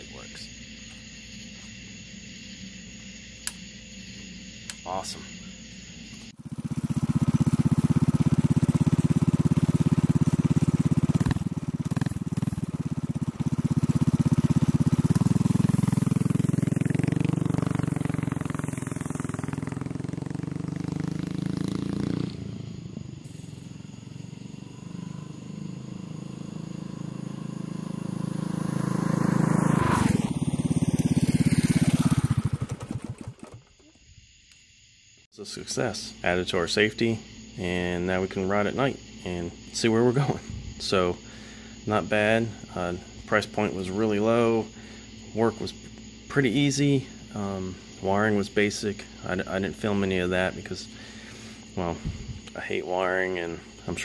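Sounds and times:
mini bike engine running: 6.4s - 33.8s.

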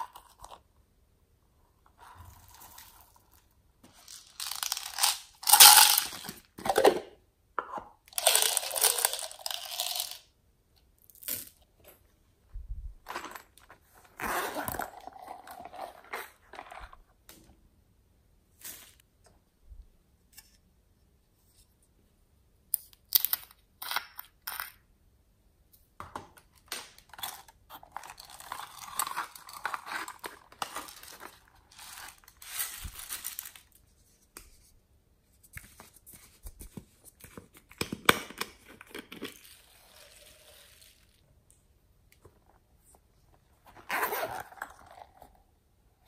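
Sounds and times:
sprinkles and beads pouring: 3.9s - 6.3s, 8.2s - 10.2s, 30.6s - 33.7s, 39.3s - 41.2s.

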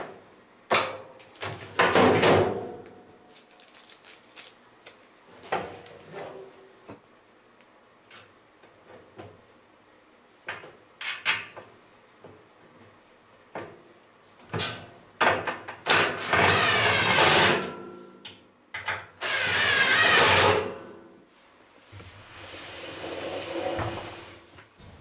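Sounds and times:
handling clicks and knocks: 3.3s - 5.0s
cordless drill driving screws: 19.2s - 20.6s.

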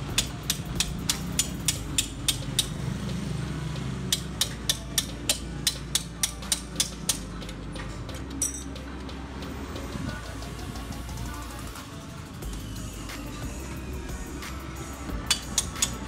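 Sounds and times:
ratchet wrench clicking: 0.0s - 2.8s, 4.1s - 7.2s, 15.2s - 16.0s.

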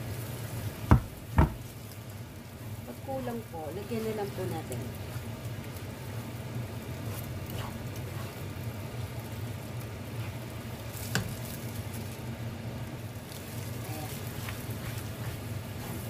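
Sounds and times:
paste sizzling in a frying pan: 0.0s - 16.0s
spatula knocking on pan: 0.9s - 1.6s.

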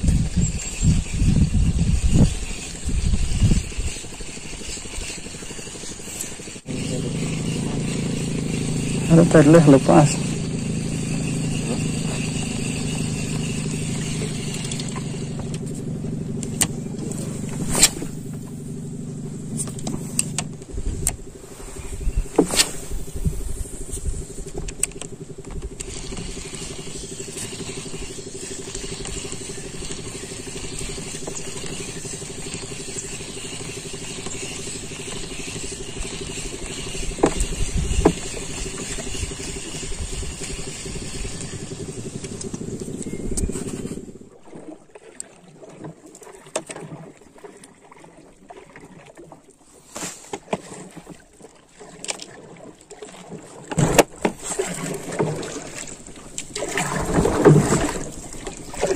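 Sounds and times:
boat engine droning: 0.0s - 58.9s.

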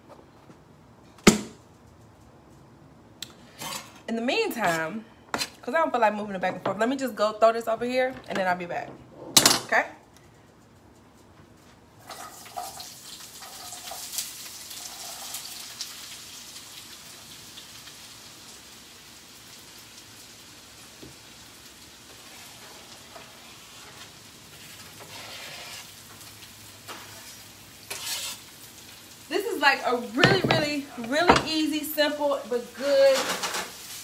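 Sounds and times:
vegetables sizzling in a pan: 12.0s - 34.0s
food scraped from cutting board: 22.2s - 25.9s, 26.9s - 28.5s.

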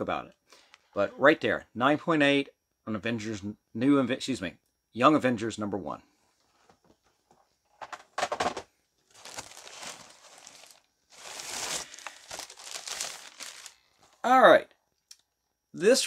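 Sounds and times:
knocks on packaging: 7.8s - 8.6s
packaging crinkling and rustling: 7.8s - 14.2s.

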